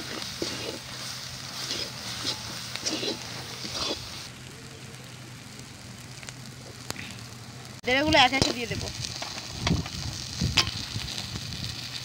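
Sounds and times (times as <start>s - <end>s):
metal spatula scraping a wok: 0.0s - 4.3s
frying sizzle: 0.0s - 12.0s.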